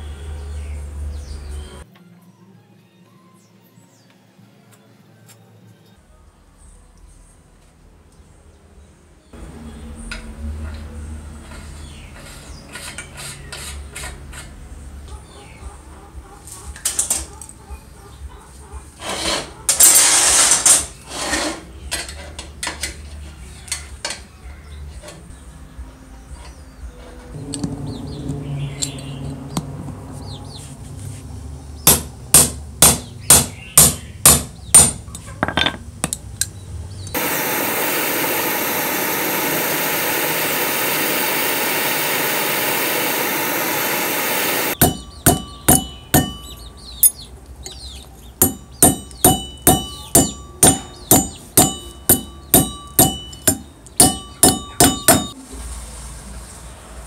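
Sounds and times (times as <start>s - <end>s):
hammer striking steel on anvil: 31.8s - 36.2s, 44.4s - 47.3s, 48.4s - 55.4s
steady hissing noise: 37.2s - 44.8s.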